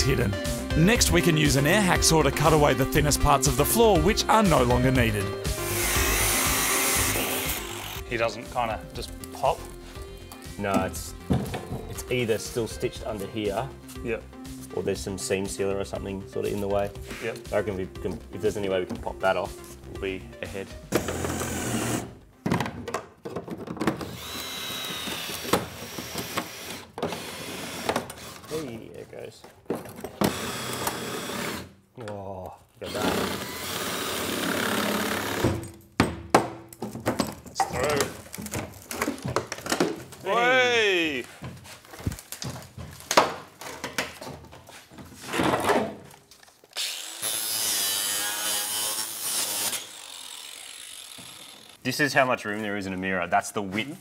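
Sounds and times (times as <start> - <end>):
power tool cutting sheet metal: 5.5 - 8.1, 21.0 - 22.1, 24.0 - 28.6, 30.2 - 31.7, 32.8 - 35.5, 46.8 - 51.8.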